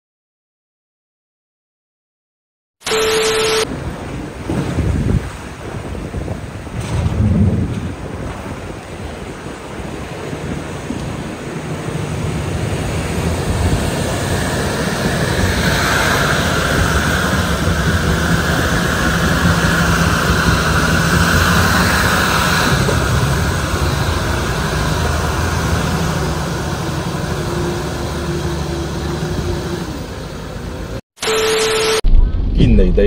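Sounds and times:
steady beep tone: 0:02.8 - 0:03.7, 0:31.2 - 0:32.3
water rushing and splashing: 0:03.7 - 0:30.8.

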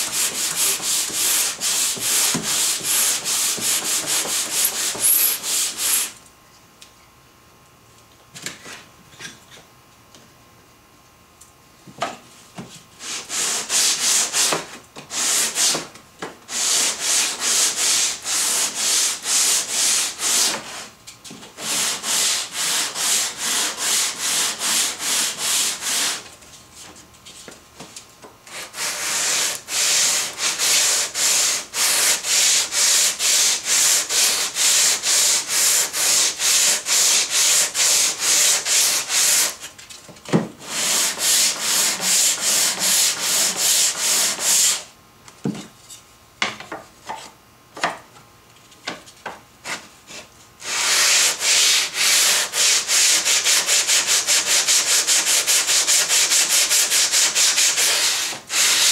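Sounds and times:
sandpaper rubbing on wood: 0:00.0 - 0:06.2, 0:13.0 - 0:15.8, 0:16.5 - 0:20.9, 0:21.6 - 0:26.2, 0:28.5 - 0:39.6, 0:40.6 - 0:44.9, 0:50.2 - 0:58.9.

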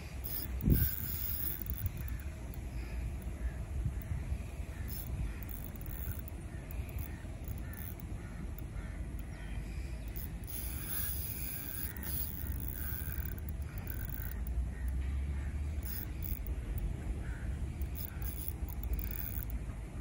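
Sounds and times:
wind rumbling on microphone: 0:00.0 - 0:07.4
bird calling: 0:00.2 - 0:19.6.

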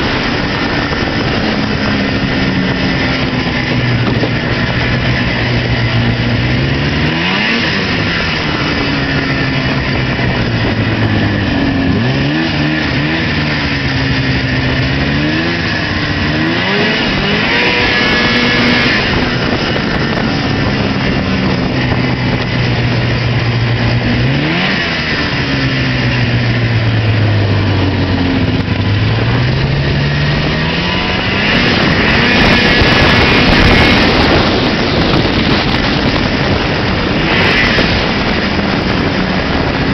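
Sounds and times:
snowmobile engine revving: 0:00.0 - 0:39.9.

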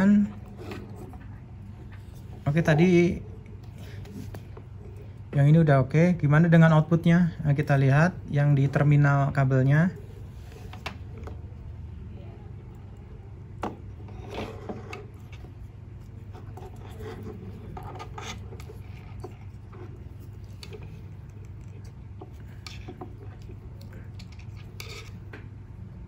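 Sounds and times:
low steady hum: 0:00.0 - 0:26.0.

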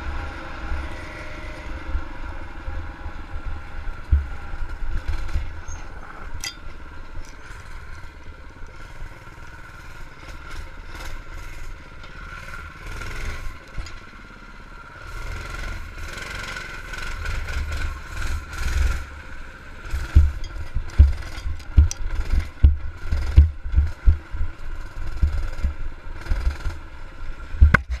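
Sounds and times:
small engine revving: 0:07.3 - 0:28.0
bike thumping over rough ground: 0:20.1 - 0:24.5.

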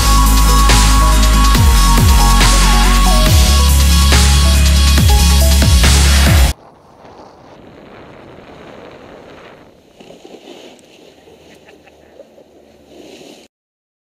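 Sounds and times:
skis sliding over snow: 0:06.5 - 0:13.5
wind on microphone: 0:06.5 - 0:13.5.

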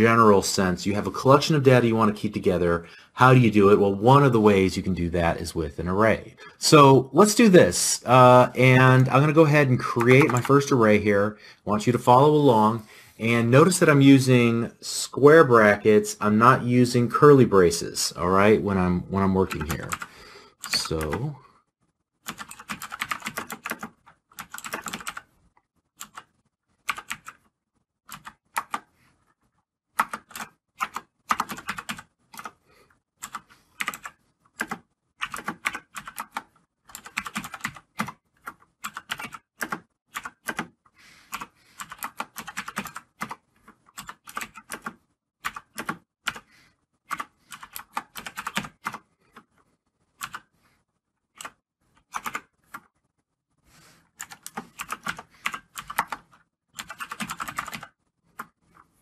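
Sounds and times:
computer keyboard typing: 0:08.8 - 0:10.7, 0:19.4 - 0:21.3, 0:22.2 - 0:25.3, 0:26.0 - 0:27.4, 0:28.1 - 0:28.9, 0:30.0 - 0:32.6, 0:33.2 - 0:40.7, 0:41.3 - 0:46.5, 0:47.1 - 0:49.5, 0:50.2 - 0:50.5, 0:51.4 - 0:52.9, 0:54.2 - 0:58.6.

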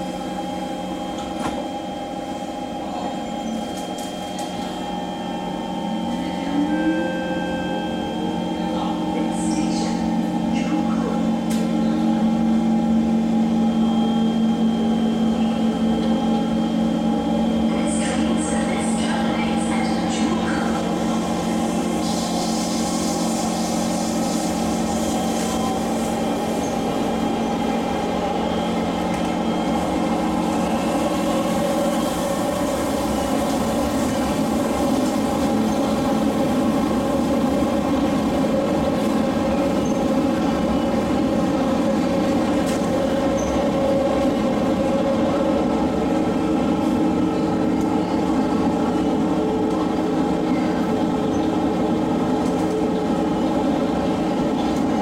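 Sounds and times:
train wheels rumbling on rail: 0:00.0 - 0:06.7, 0:08.2 - 0:55.0
multi-tone train hum: 0:00.0 - 0:55.0.

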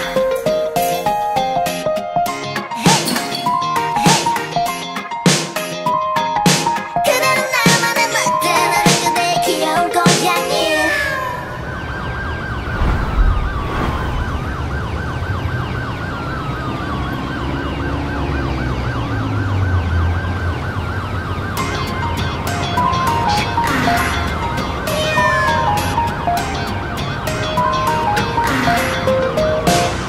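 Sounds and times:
siren wailing: 0:10.7 - 0:26.7
low drone: 0:12.6 - 0:16.0.

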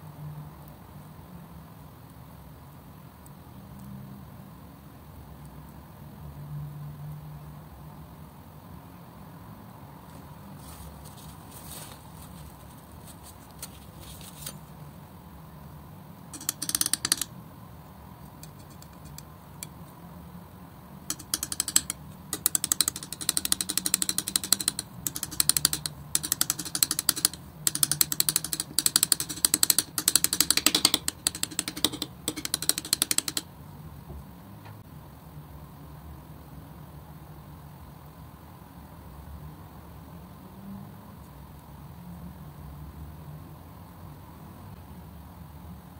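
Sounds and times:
palette knife scraping paint: 0:18.4 - 0:19.2.

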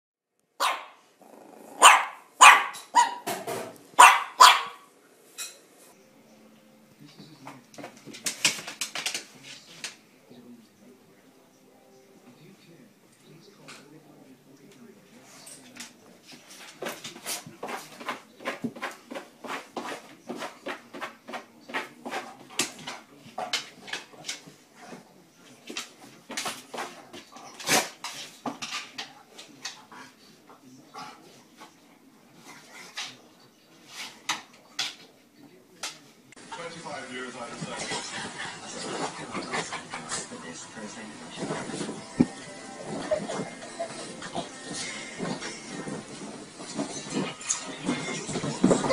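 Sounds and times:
puppy barking: 0:00.6 - 0:01.0, 0:01.8 - 0:03.3, 0:04.0 - 0:04.9.

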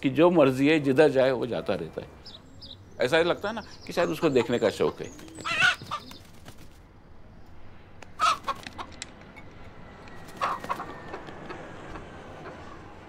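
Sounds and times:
rooster flapping wings: 0:05.1 - 0:06.9, 0:08.2 - 0:08.9, 0:10.2 - 0:12.0.

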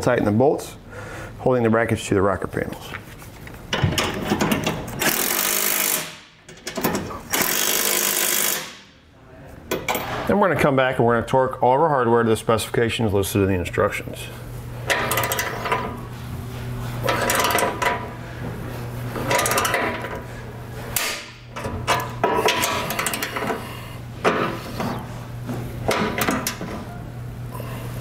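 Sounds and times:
steady low hum: 0:00.0 - 0:28.0
torque wrench ratcheting: 0:05.0 - 0:06.2, 0:07.3 - 0:08.8, 0:21.9 - 0:23.6.

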